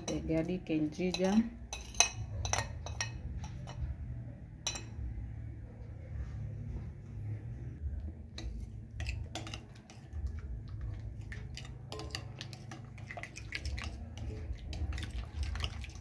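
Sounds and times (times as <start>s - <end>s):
low steady rumble: 0.0s - 12.9s
soft wet squishes: 8.0s - 16.0s.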